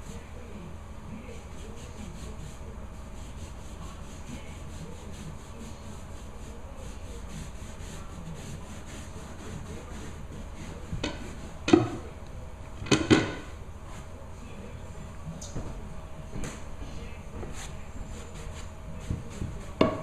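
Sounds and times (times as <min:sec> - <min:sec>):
hand rubbing over rug: 0:01.2 - 0:12.2, 0:16.8 - 0:19.8.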